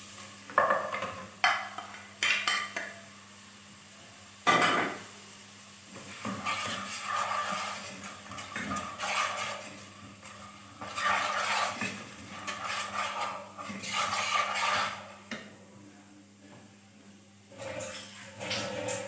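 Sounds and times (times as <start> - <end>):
spice paste frying in oil: 0.0 - 15.5
spatula scraping metal pot: 6.0 - 15.4, 17.5 - 19.0.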